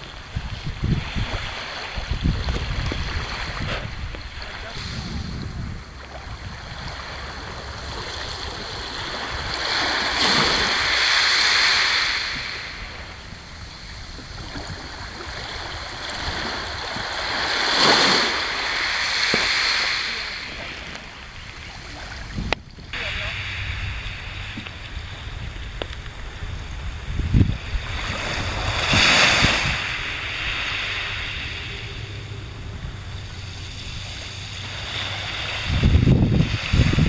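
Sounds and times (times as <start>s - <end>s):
small waves washing onto shore: 0.0s - 37.0s
wind rumbling on microphone: 0.0s - 37.0s.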